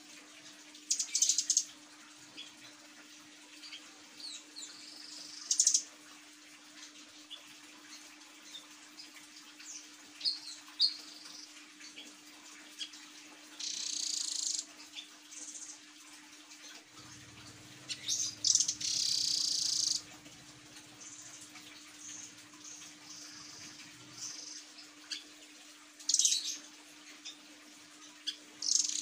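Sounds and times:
faint steady hum: 0:00.0 - 0:29.0
bird chips and trills: 0:17.4 - 0:20.1, 0:28.2 - 0:29.0.

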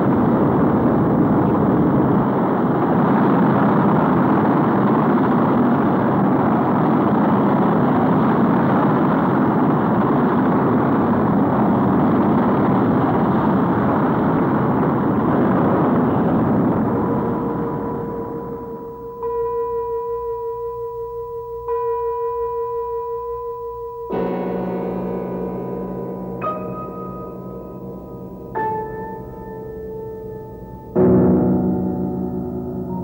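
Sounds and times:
rocket engines roaring: 0:00.0 - 0:19.3.

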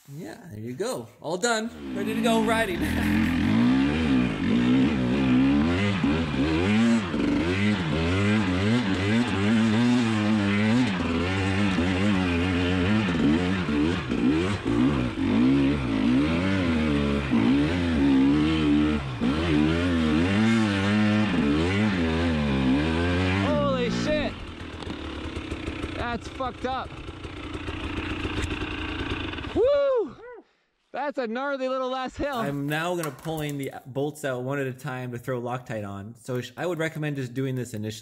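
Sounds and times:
dirt bike engine revving: 0:01.6 - 0:29.6.

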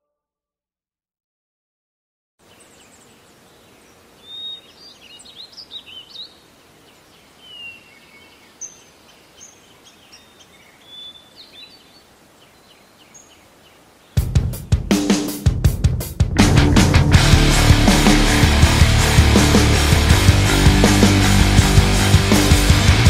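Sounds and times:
songbirds singing: 0:02.4 - 0:15.2
faint steady hiss: 0:02.4 - 0:15.4.

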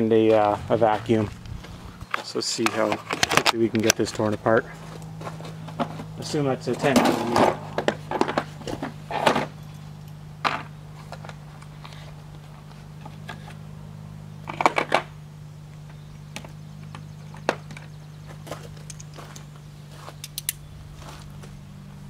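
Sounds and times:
steady low hum: 0:00.0 - 0:22.0
socket wrench clicks: 0:20.2 - 0:20.6.

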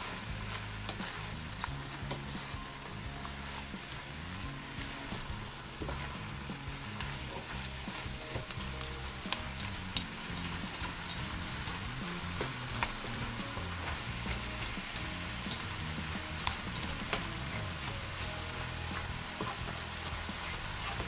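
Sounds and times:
food sizzling in a frying pan: 0:00.0 - 0:21.0
spatula clicking against pan: 0:08.4 - 0:11.3.

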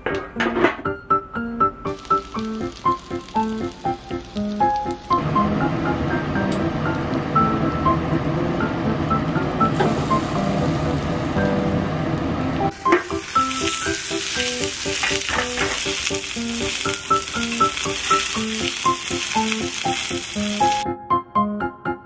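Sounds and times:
light background music: 0:00.0 - 0:22.0
dumplings sizzling in oil: 0:01.9 - 0:05.4, 0:12.6 - 0:20.8.

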